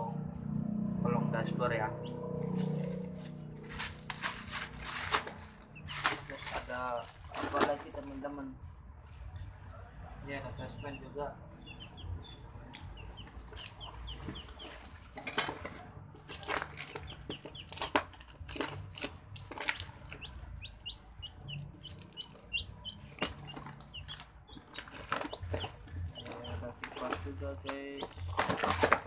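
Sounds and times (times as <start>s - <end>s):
plastic and bubble wrap crinkling: 2.5s - 9.6s, 13.4s - 20.6s, 21.8s - 29.0s
bird chirps: 10.5s - 15.0s, 16.8s - 18.6s, 19.7s - 28.8s
cardboard boxes knocking: 24.6s - 29.0s.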